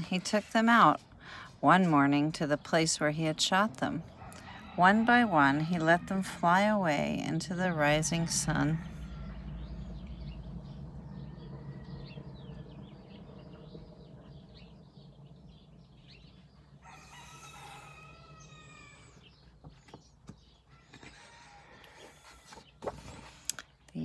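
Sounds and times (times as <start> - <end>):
low background rumble: 0.0 - 24.0
small birds chirping: 8.9 - 24.0
rooster crowing: 16.8 - 19.2, 20.7 - 22.6.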